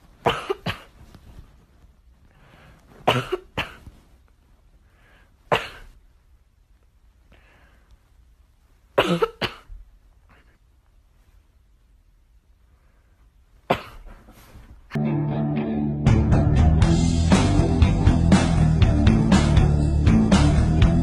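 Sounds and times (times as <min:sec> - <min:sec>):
harsh cough-like bursts: 0:00.2 - 0:01.0, 0:03.0 - 0:04.0, 0:05.5 - 0:06.0, 0:09.0 - 0:10.6, 0:13.7 - 0:14.5.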